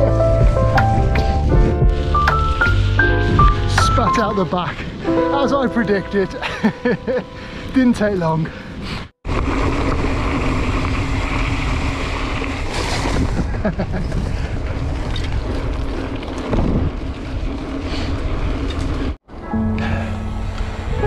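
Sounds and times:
wind buffeting microphone: 0:07.3 - 0:19.2.

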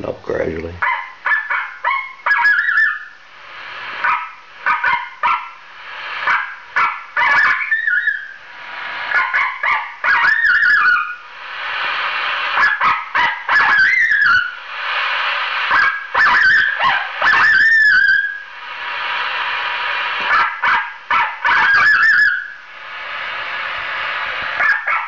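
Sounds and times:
speaker hiss: 0:00.0 - 0:25.0
coyote barks and yips from speaker: 0:00.8 - 0:03.1, 0:04.0 - 0:05.6, 0:06.3 - 0:08.3, 0:09.1 - 0:11.2, 0:12.6 - 0:14.6, 0:15.7 - 0:18.4, 0:20.3 - 0:22.5, 0:24.6 - 0:25.0.

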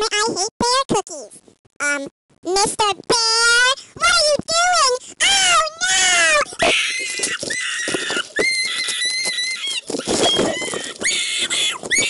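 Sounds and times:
scuffling: 0:06.4 - 0:12.0
high squeals: 0:06.6 - 0:12.0.

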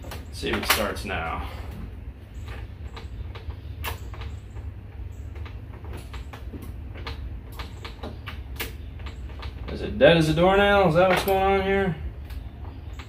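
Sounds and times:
scooter engine cranking: 0:00.0 - 0:13.0
clicks and knocks: 0:02.4 - 0:11.6.

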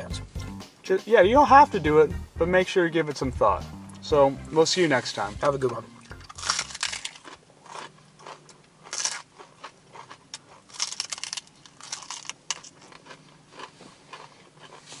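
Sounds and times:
crunchy chewing: 0:06.0 - 0:15.0.

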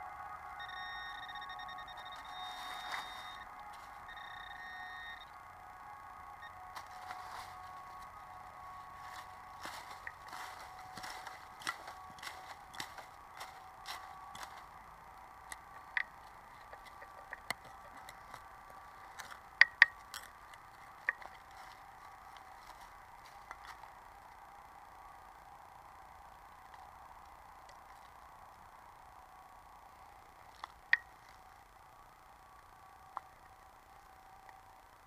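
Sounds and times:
faint steady electronic tone: 0:00.0 - 0:35.0
hand trowel digging into soil: 0:09.0 - 0:14.7
blade clicking on stones: 0:09.7 - 0:14.7, 0:15.5 - 0:21.8.

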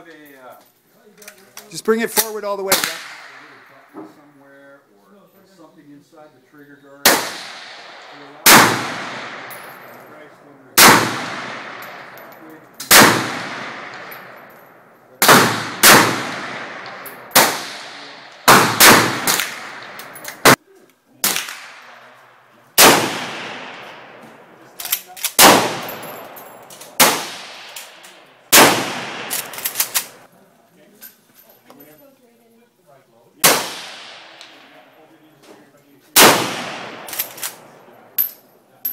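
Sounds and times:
rifle shots echoing: 0:01.9 - 0:04.0, 0:07.0 - 0:20.6, 0:21.2 - 0:30.3, 0:33.4 - 0:34.9, 0:36.2 - 0:38.3.

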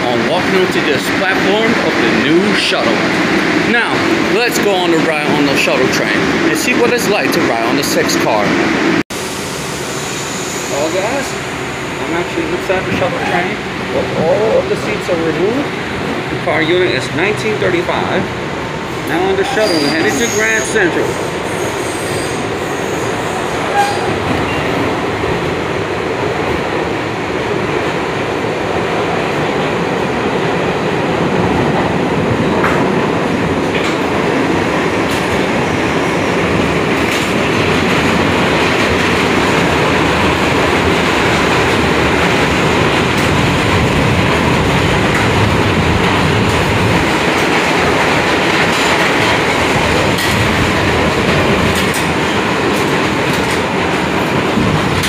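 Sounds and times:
steel wheels rumbling on rails: 0:00.0 - 0:55.0.

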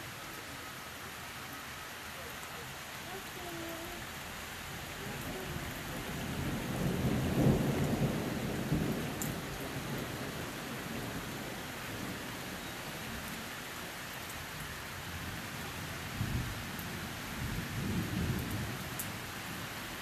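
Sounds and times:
thunder rumbling: 0:04.9 - 0:12.5.

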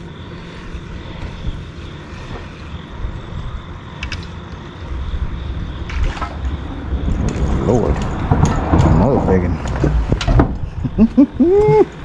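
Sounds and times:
road traffic rumble: 0:00.0 - 0:12.0
small clicks: 0:04.0 - 0:04.4.

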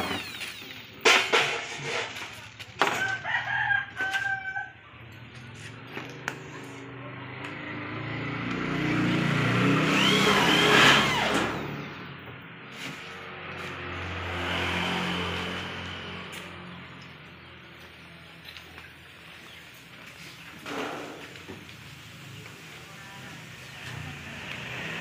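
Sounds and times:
rooster crowing: 0:02.9 - 0:04.8
vehicle engine: 0:04.8 - 0:25.0.

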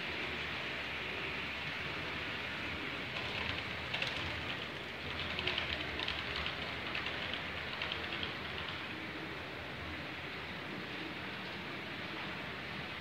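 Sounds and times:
steady hiss: 0:00.0 - 0:13.0
model train wheels clicking: 0:02.9 - 0:09.0.

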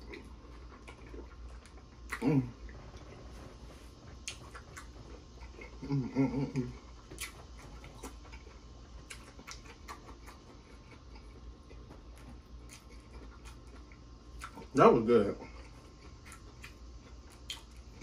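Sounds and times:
chewing clicks and smacks: 0:00.0 - 0:02.3, 0:04.1 - 0:05.8, 0:06.9 - 0:14.8, 0:15.4 - 0:18.0
man humming in enjoyment: 0:02.2 - 0:02.6, 0:05.8 - 0:06.8.

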